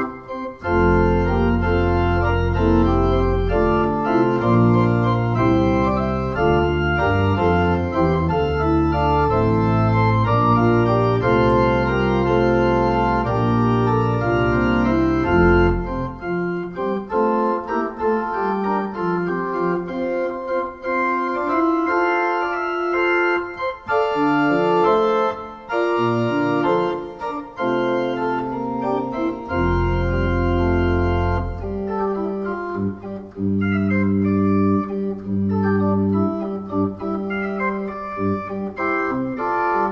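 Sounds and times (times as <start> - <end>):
deep organ bass notes: 0.0 - 39.9
electronic organ chords: 0.0 - 39.9.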